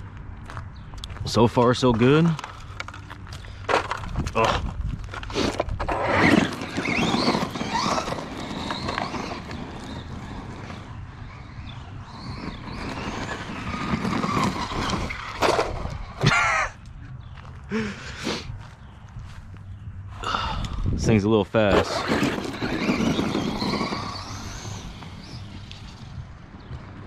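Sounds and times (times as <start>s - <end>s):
rc truck motor whine: 5.2s - 16.3s, 21.7s - 27.0s.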